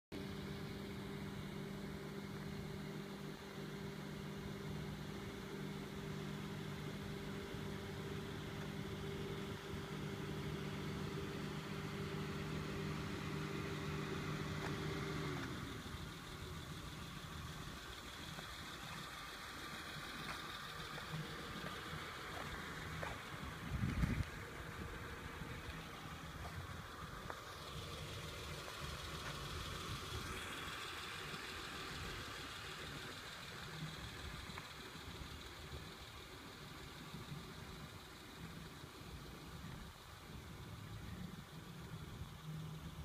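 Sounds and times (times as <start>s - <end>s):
motor hum winding down: 0.2s - 43.0s
outdoor background hiss: 0.2s - 43.0s.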